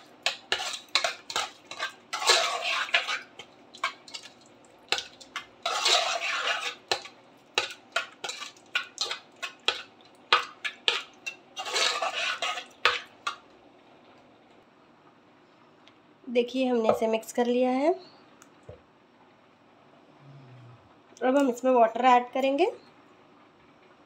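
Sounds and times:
spoon scraping pot: 0.0 - 4.3, 4.9 - 13.4.

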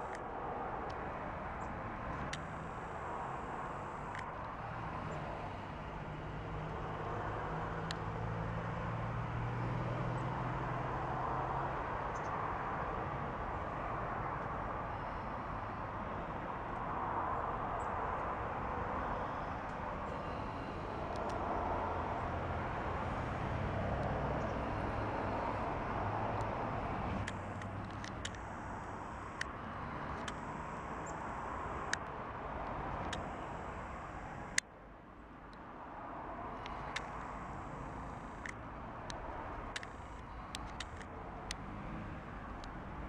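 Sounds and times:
outdoor background rush: 0.0 - 43.0
sharp clicks: 1.6 - 6.3, 19.2 - 21.6, 23.8 - 34.7, 36.6 - 42.8.

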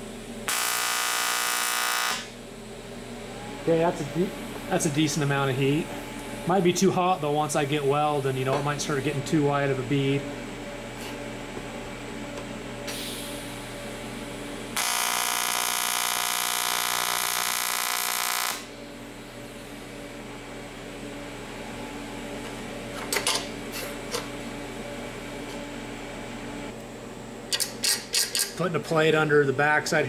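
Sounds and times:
welding arc buzzing: 0.0 - 3.0, 12.9 - 20.2.

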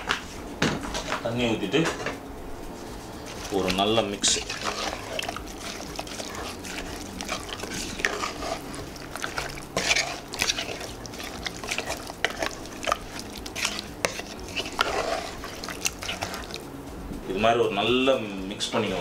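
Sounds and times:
spatula scraping metal pot: 3.1 - 16.7.

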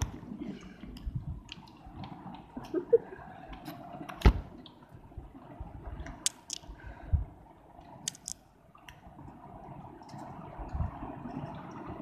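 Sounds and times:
rain tapping on window: 8.8 - 12.0.

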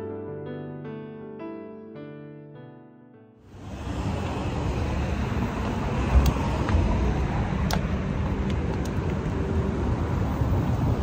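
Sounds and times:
passing cars rumbling: 3.5 - 11.0
sharp clicks: 7.6 - 9.2.

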